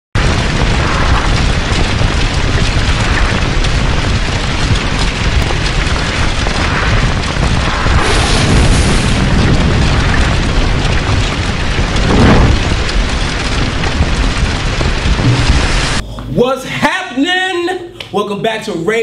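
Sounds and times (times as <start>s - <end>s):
fire and explosion blast: 0.2s - 16.0s
bright rush: 6.5s - 10.4s, 15.1s - 16.0s.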